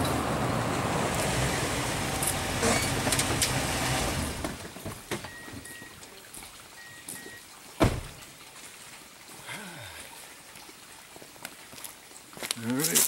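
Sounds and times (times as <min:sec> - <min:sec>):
sharp thud: 0:07.8 - 0:08.2.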